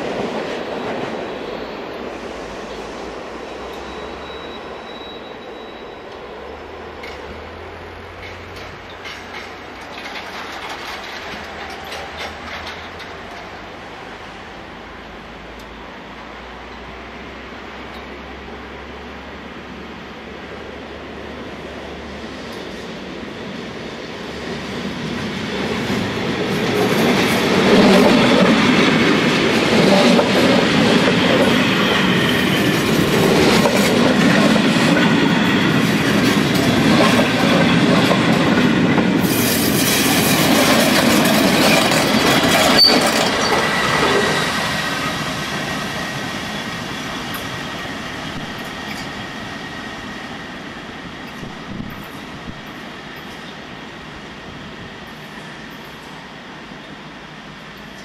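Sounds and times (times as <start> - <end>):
wheel flange squeal: 3.6 - 6.3, 41.6 - 45.2
train wheels clattering: 7.0 - 13.7, 25.2 - 50.0.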